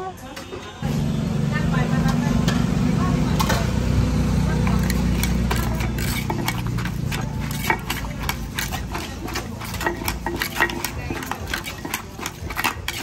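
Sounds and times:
spoon scraping: 0:04.6 - 0:13.0.

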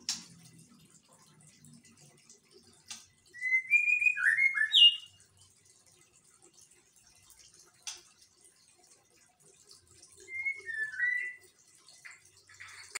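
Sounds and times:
bird whistling: 0:03.4 - 0:05.1, 0:10.3 - 0:11.4.

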